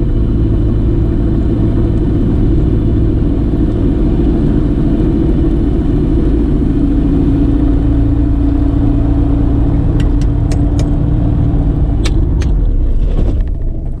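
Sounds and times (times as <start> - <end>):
aircraft engine drone: 0.0 - 14.0
sharp clicks: 10.0 - 11.0.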